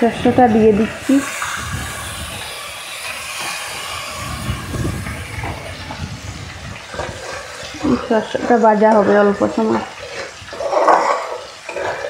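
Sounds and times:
paste sizzling in hot oil: 0.0 - 12.0.

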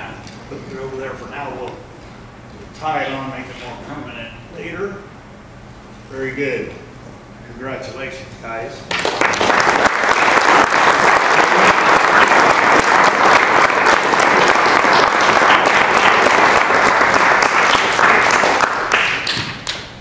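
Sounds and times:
audience applauding: 8.9 - 19.9.

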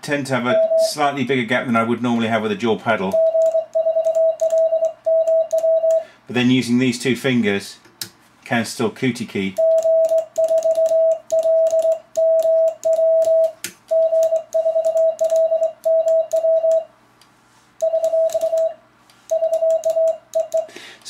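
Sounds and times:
morse code sidetone beeping: 0.5 - 1.0, 3.1 - 6.1, 9.6 - 16.9, 17.8 - 20.7.

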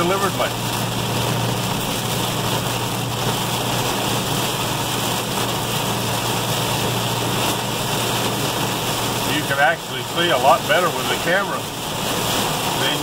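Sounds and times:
heavy rain on windshield: 0.0 - 13.0
road noise: 0.0 - 13.0
truck engine hum: 0.0 - 13.0.

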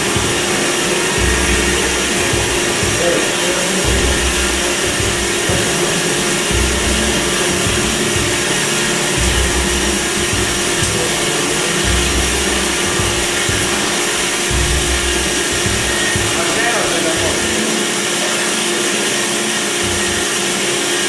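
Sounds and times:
low rumble: 0.0 - 16.4
band saw running: 0.0 - 21.0.

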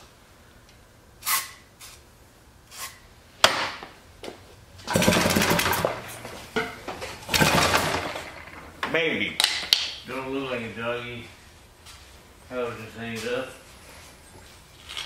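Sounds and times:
engine cranking by rope: 4.8 - 6.2, 7.2 - 8.7.

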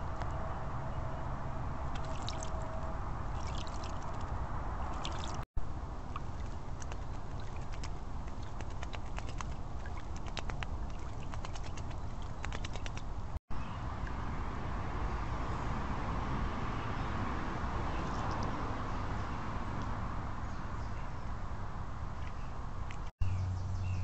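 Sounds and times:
water splashing in a bowl: 1.9 - 2.6, 3.3 - 5.4, 6.1 - 13.2
small animals ticking and rustling: 6.2 - 13.1.

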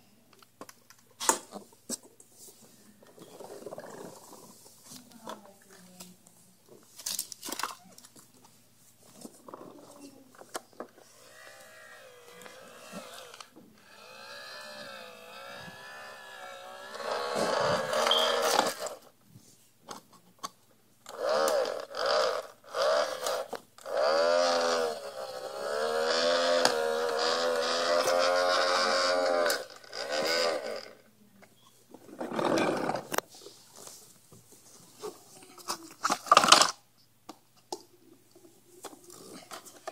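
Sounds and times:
person making engine noises: 21.1 - 31.0.

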